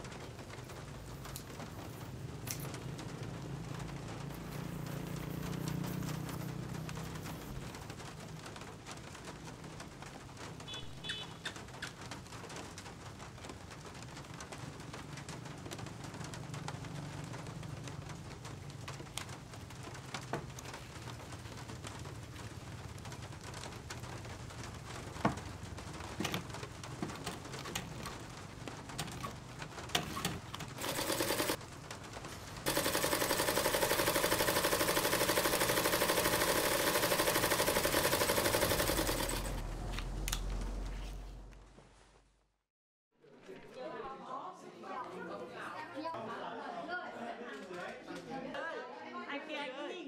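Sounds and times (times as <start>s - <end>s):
sewing machine stitching: 29.2s - 31.6s, 32.6s - 39.8s
low hum: 38.7s - 42.2s.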